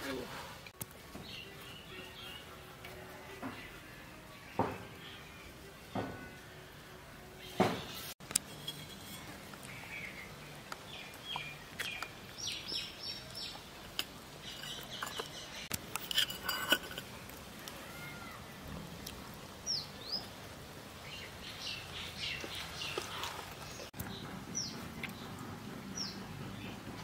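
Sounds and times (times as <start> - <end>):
birds chirping: 1.1 - 2.7, 8.8 - 15.8, 19.0 - 27.0
steel bowl clinking: 8.4 - 9.7, 13.9 - 17.2.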